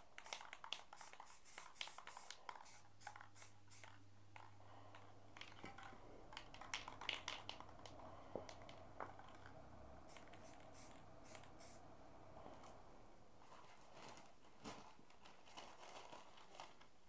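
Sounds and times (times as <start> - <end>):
spray paint hissing: 0.0 - 4.0, 10.0 - 11.8
spray can clicks and ticks: 0.2 - 4.0, 6.3 - 8.8, 10.1 - 11.8.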